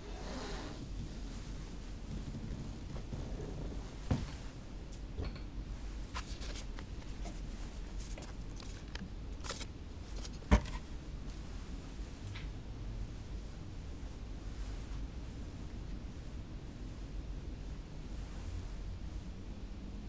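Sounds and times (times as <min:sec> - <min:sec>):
low room hum: 0:00.0 - 0:20.0
small clicks and rustles: 0:06.0 - 0:10.5.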